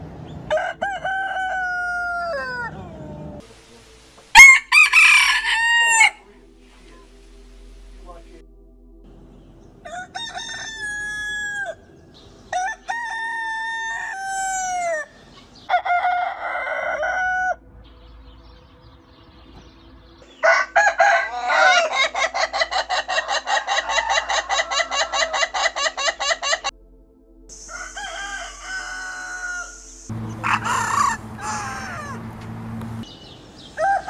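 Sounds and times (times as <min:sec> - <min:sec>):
roosters crowing: 0:00.4 - 0:03.4, 0:04.4 - 0:06.2, 0:09.8 - 0:11.9, 0:12.5 - 0:17.6, 0:20.3 - 0:26.7, 0:27.5 - 0:34.0
rapid clucking: 0:30.1 - 0:33.0.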